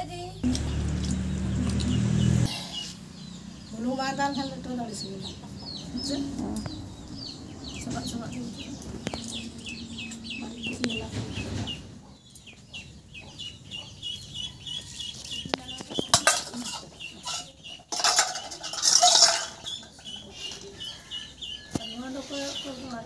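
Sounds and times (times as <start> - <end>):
birds chirping: 0.0 - 23.0
steel utensils and bowls clinking: 16.0 - 20.8
loud metallic clatter: 16.1 - 20.2.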